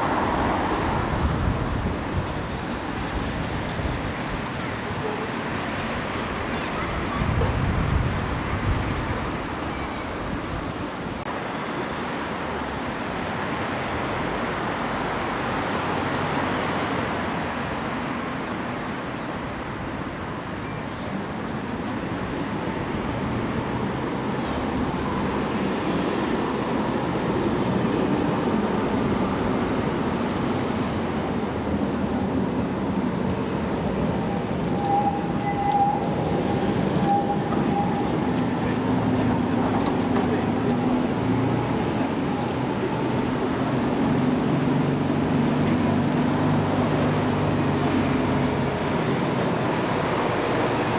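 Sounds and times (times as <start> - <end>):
city traffic and street noise: 0.0 - 50.9
tram wheel squeal high tone: 0.4 - 10.5, 19.6 - 43.0.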